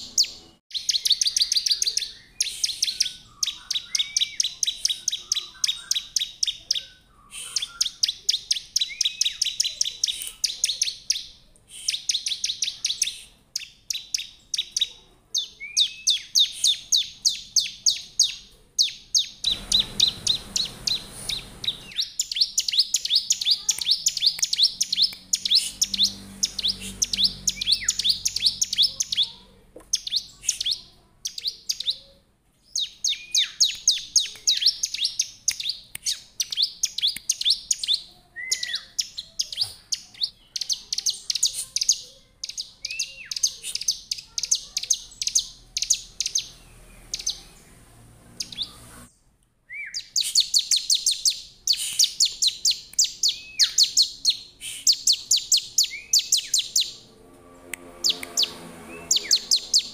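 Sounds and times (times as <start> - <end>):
bird singing high notes: 19.4 - 29.3, 53.2 - 59.9.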